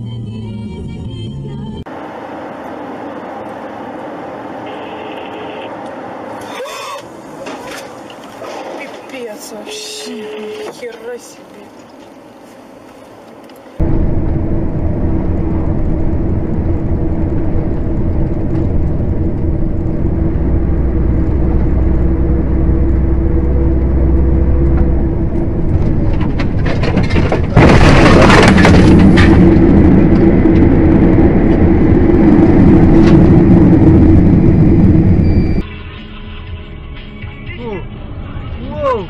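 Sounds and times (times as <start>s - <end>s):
truck engine and road drone: 0.0s - 9.4s, 11.3s - 39.0s
sudden loud noise burst: 13.8s - 35.7s.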